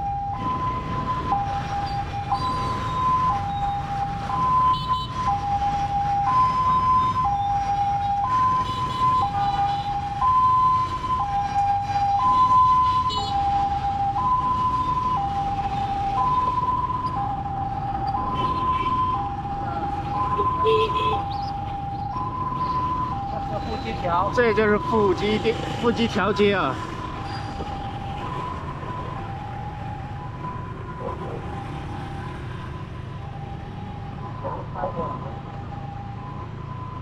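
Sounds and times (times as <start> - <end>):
motorbike traffic rumble: 0.0 - 37.0
two-tone siren: 0.0 - 37.0.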